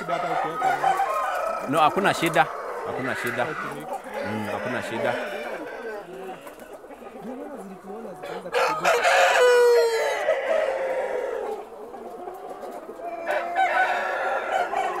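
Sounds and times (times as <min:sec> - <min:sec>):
chickens clucking: 0:00.0 - 0:15.0
rooster crowing: 0:00.4 - 0:06.0, 0:08.3 - 0:11.5, 0:13.1 - 0:15.0.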